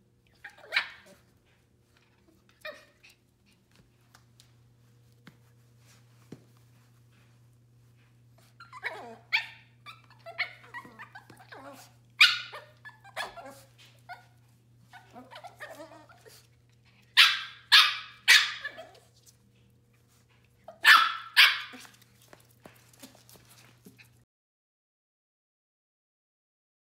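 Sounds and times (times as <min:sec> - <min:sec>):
puppies barking: 0:00.4 - 0:01.2, 0:08.6 - 0:16.4, 0:17.0 - 0:19.1, 0:20.7 - 0:22.0.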